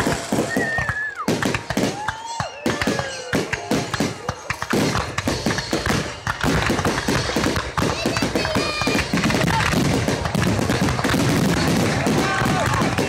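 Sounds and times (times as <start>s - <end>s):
fireworks bangs and crackles: 0.0s - 13.0s.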